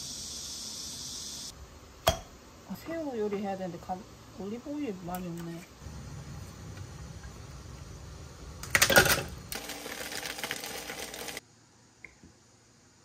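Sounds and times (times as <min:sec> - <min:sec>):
food sizzling in a hot pan: 0:09.5 - 0:11.4.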